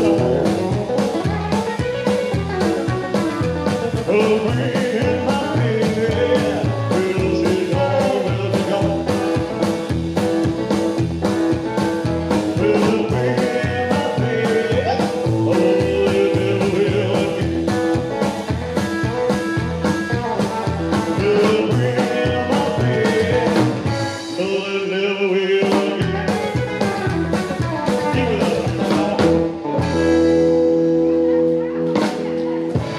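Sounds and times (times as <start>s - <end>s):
man singing: 0.0s - 1.0s, 3.2s - 9.9s, 12.4s - 18.2s, 20.4s - 29.7s
live rock and roll band: 0.0s - 32.9s.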